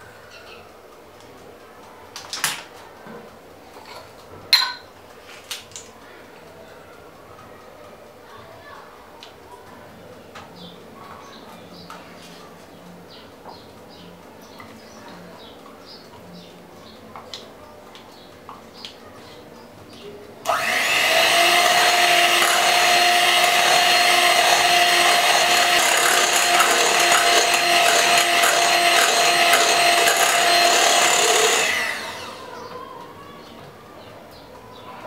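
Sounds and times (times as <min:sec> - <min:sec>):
electric hand mixer whining: 0:20.5 - 0:32.7
mixer motor spinning down: 0:20.5 - 0:32.7.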